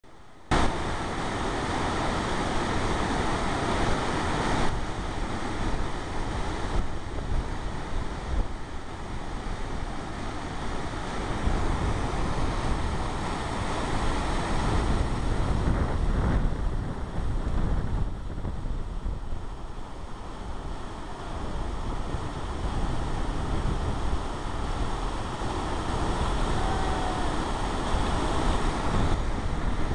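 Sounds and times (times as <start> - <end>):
water rushing over a dam: 0.2 - 29.9.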